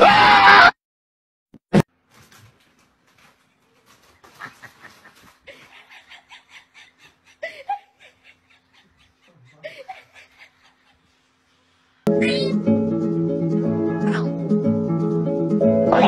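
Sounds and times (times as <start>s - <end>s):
person laughing: 4.2s - 11.2s.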